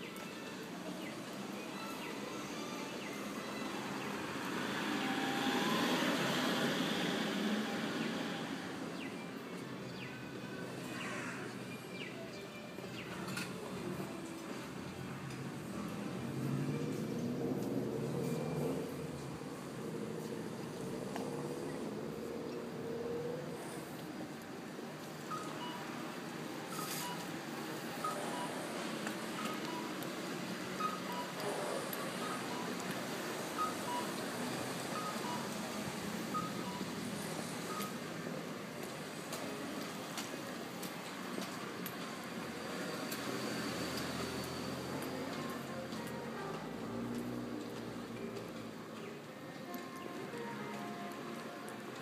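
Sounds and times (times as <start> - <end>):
traffic noise: 0.0 - 52.0
vehicle passing: 2.6 - 9.2, 14.4 - 24.3.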